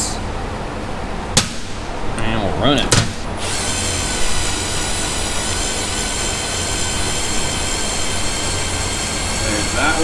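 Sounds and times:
drill motor and gears whining: 3.4 - 10.0.

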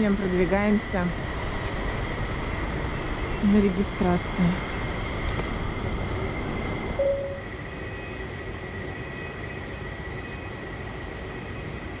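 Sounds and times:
rumbling hum of terminal hall: 0.0 - 12.0
faint steady high tone: 7.0 - 7.5
short tone blip: 7.0 - 7.5.

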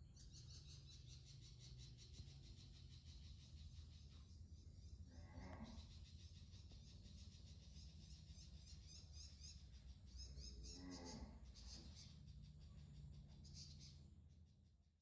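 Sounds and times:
rapid high-pitched chirping: 0.1 - 4.6, 5.8 - 10.8.

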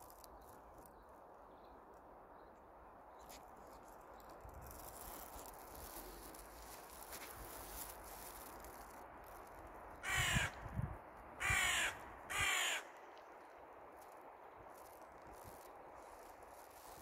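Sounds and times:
crow cawing: 10.0 - 10.6, 11.4 - 13.0.

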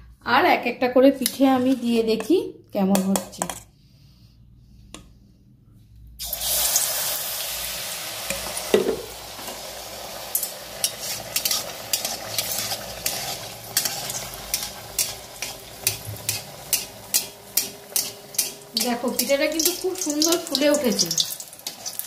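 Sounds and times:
batter frying in hot oil: 6.2 - 22.0
oil crackling: 6.2 - 22.0.

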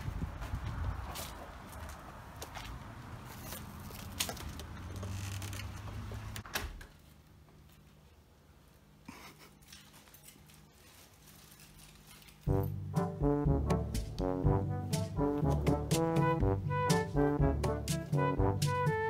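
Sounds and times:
brass music: 12.5 - 19.0.

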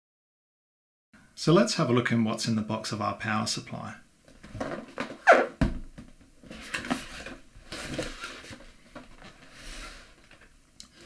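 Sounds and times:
cardboard rustling and scraping: 6.4 - 10.4.

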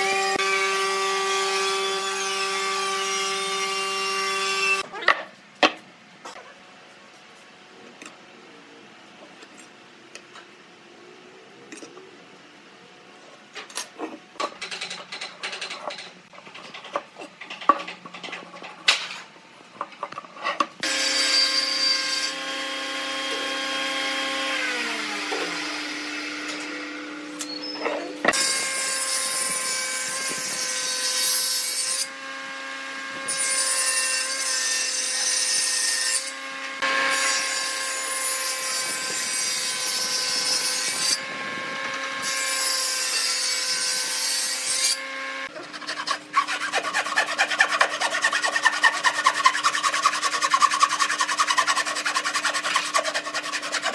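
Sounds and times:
table saw running and cutting wood: 0.0 - 4.8, 20.8 - 27.2, 28.3 - 53.9
hand saw cutting boards: 20.6 - 26.8, 33.1 - 53.9.

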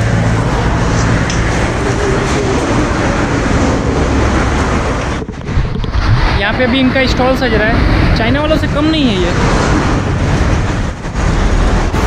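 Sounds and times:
roadside traffic roar: 0.0 - 12.0.

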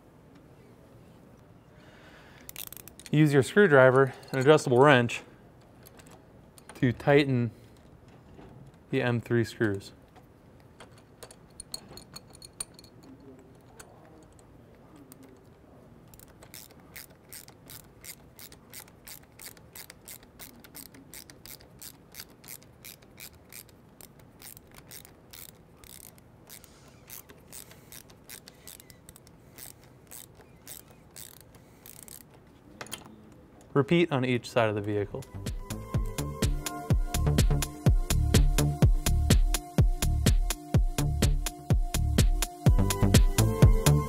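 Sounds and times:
screwdriver tightening screw clicks: 2.5 - 3.2, 13.5 - 33.1.

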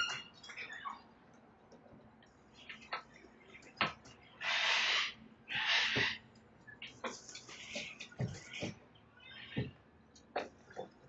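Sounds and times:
cockatoo screeches: 4.4 - 6.2.

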